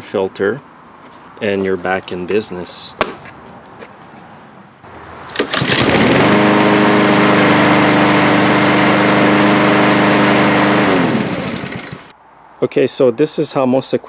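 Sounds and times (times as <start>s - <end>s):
mower engine starting and running: 4.9s - 12.1s.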